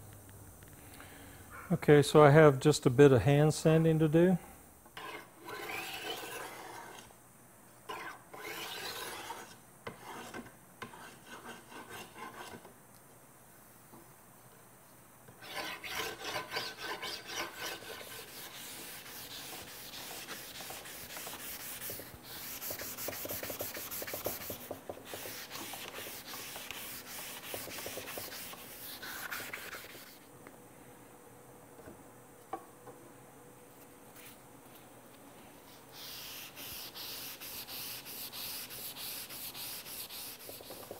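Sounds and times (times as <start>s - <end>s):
sandpaper rubbing on wood: 15.5s - 30.2s, 35.9s - 40.9s.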